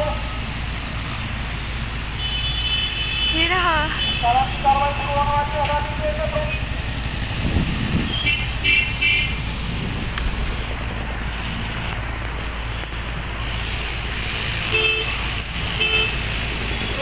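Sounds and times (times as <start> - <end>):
car horn toots: 14.7 - 15.2.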